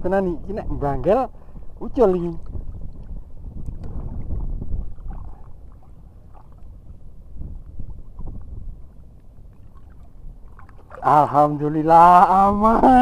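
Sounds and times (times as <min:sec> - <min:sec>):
wind on microphone: 0:00.0 - 0:13.0
water lapping: 0:01.9 - 0:11.9
small splashes: 0:02.1 - 0:06.8, 0:09.4 - 0:11.4.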